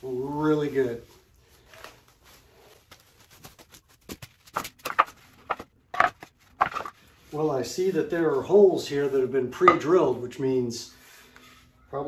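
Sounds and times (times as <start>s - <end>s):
plastic wrapping rustling: 0.2s - 8.9s
wooden boards clattering together: 4.8s - 7.0s.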